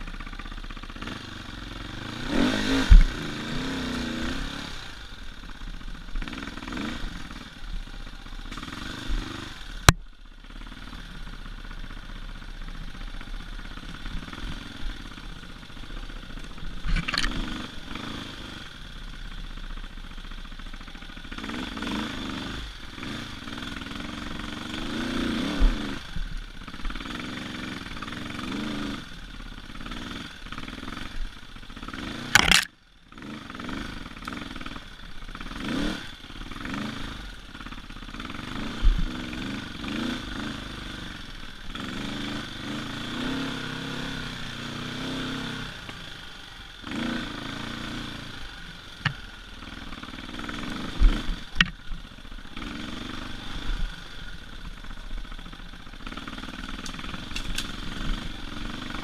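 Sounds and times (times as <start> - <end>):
dirt bike engine revving: 0.0 - 11.6, 13.1 - 19.0, 21.2 - 59.0
sharp knocks from bike: 2.8 - 3.2, 16.8 - 17.4, 32.3 - 32.7, 51.0 - 51.8.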